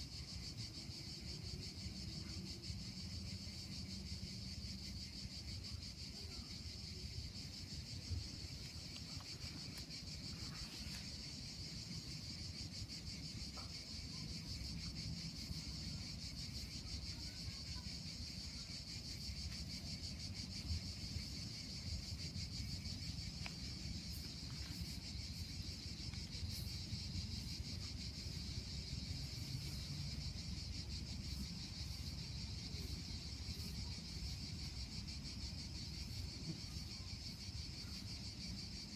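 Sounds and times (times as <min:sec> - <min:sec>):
insects chirring: 0:00.0 - 0:38.9.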